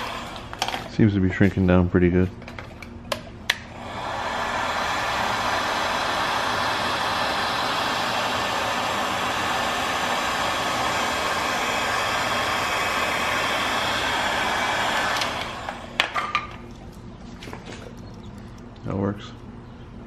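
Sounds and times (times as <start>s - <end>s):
heat gun blowing: 0.0s - 0.8s, 3.5s - 16.3s.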